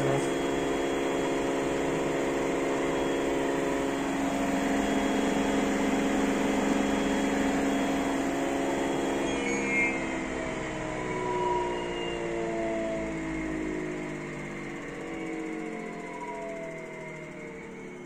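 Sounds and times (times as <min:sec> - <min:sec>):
washing machine spinning: 0:00.0 - 0:09.2.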